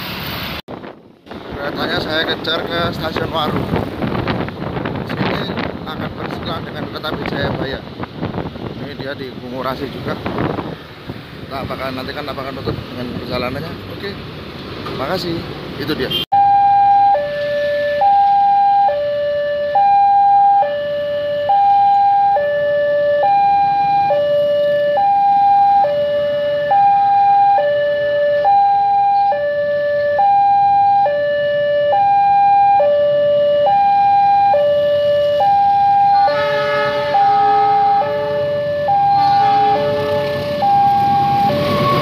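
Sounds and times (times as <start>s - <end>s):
level crossing two-tone alarm: 16.4s - 42.0s
approaching diesel locomotive: 35.0s - 42.0s.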